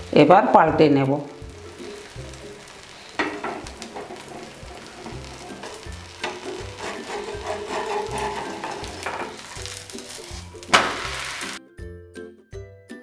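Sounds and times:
batter sizzling: 0.0s - 11.6s
metal spatula scraping a hot griddle: 1.7s - 11.6s.

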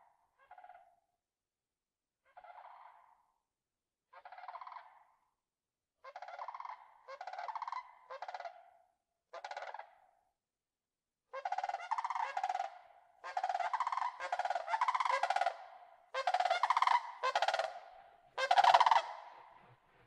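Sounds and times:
cranes calling: 13.3s - 15.6s, 16.2s - 19.7s.

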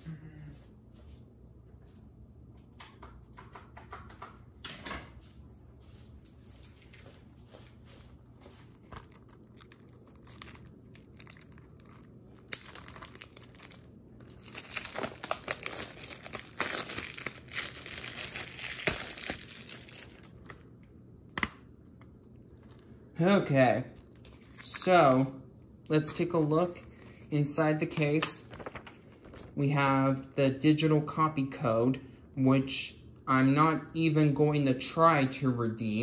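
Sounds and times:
plastic wrap crinkling: 8.6s - 21.0s, 22.1s - 23.1s, 23.8s - 24.8s, 28.2s - 29.6s.

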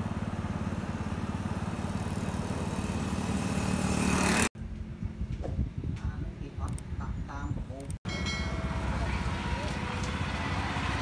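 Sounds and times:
small engine running: 0.0s - 4.5s.

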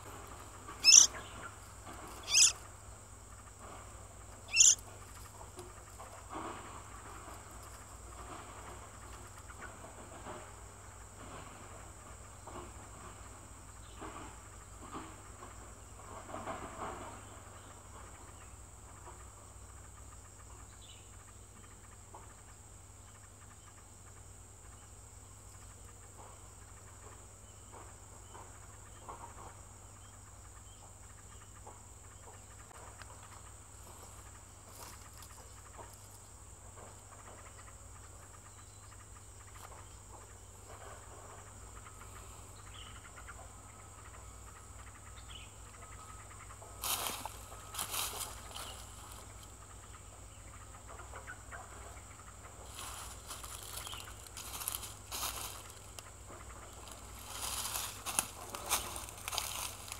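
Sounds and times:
soft rustles and ticks: 0.0s - 2.8s, 3.4s - 17.2s, 31.6s - 38.2s, 51.9s - 59.9s
high-pitched insect drone: 0.8s - 1.2s, 2.2s - 2.7s, 4.4s - 4.9s.

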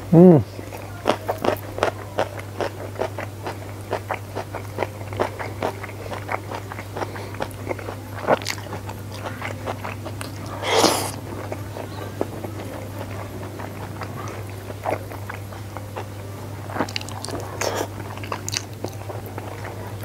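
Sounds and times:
steady low hum: 0.0s - 20.0s
chewing mouth clicks: 16.7s - 19.7s.

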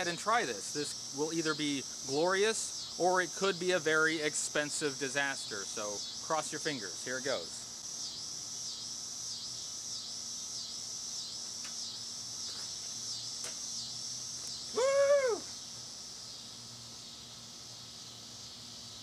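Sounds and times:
crickets chirping: 0.0s - 19.0s
man whooping: 14.7s - 15.6s.

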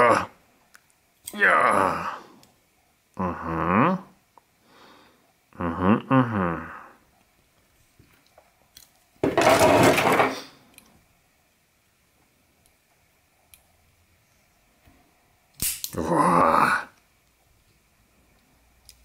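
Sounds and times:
voice-like sounds: 0.0s - 0.4s, 1.3s - 2.3s, 3.2s - 4.2s, 5.5s - 7.0s, 16.0s - 17.0s
metal folding knives clicking: 15.6s - 16.0s.

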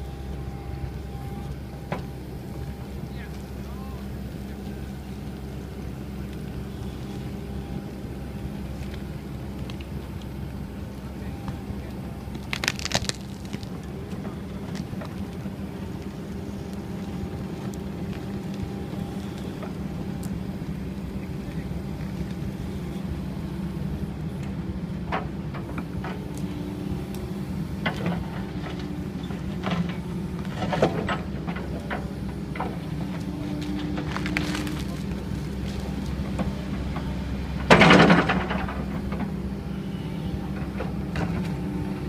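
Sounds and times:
excavator running: 0.0s - 42.0s
blade pushing soil and roots: 8.6s - 20.3s, 32.5s - 37.4s
sharp knocks and cracks: 12.4s - 13.7s.

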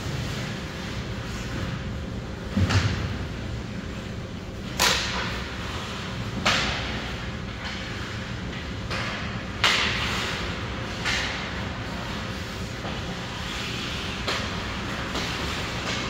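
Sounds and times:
low rumble of rink noise: 0.0s - 16.0s.

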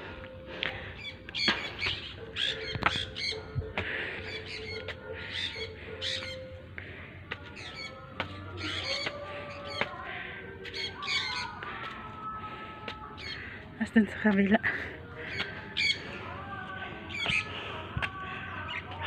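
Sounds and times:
faint music: 0.0s - 19.0s
birds squawking: 1.0s - 6.6s, 7.5s - 9.9s, 10.7s - 11.6s, 13.2s - 13.6s, 15.2s - 16.2s, 17.1s - 17.5s.

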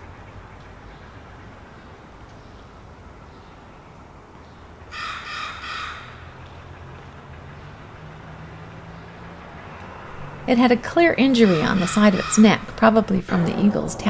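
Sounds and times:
crow cawing: 4.9s - 6.3s, 11.3s - 12.6s
low hum: 12.4s - 14.0s.

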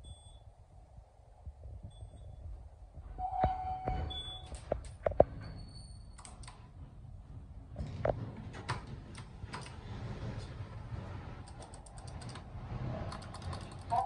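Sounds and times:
faint high beep: 0.0s - 0.5s, 1.9s - 2.4s, 3.2s - 4.6s
low hum: 0.0s - 14.0s.

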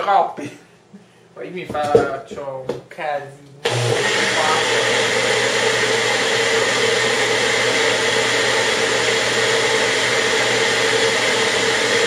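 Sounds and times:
blender motor running: 3.6s - 12.0s.

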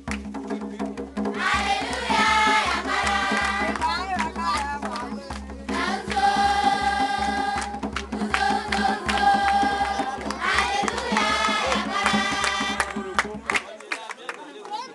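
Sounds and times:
sharp hand claps: 0.0s - 0.3s, 1.8s - 2.3s, 3.0s - 6.2s, 7.6s - 14.9s
crowd singing a dance song: 1.3s - 4.2s, 5.7s - 13.5s.

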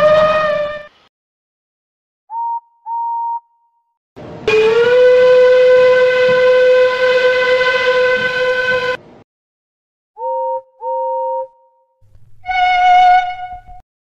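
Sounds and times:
steam locomotive whistle: 0.0s - 1.1s, 4.4s - 9.1s, 12.4s - 13.8s.

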